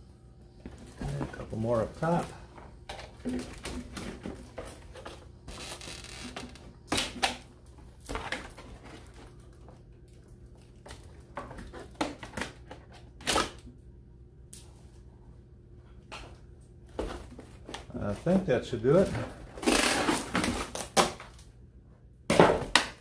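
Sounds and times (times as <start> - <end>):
cardboard rustling and scraping: 0.7 - 6.9.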